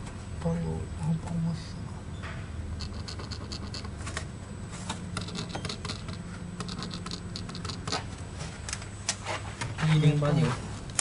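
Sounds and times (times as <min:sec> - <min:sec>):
steady low hum: 0:00.0 - 0:11.0
pen scratching on paper: 0:02.8 - 0:03.9, 0:05.2 - 0:08.1.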